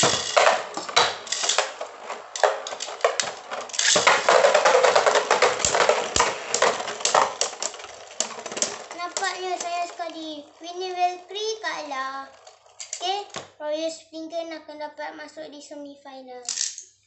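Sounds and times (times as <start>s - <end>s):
spinning tops clattering in bowl: 0.0s - 10.6s, 11.5s - 13.2s.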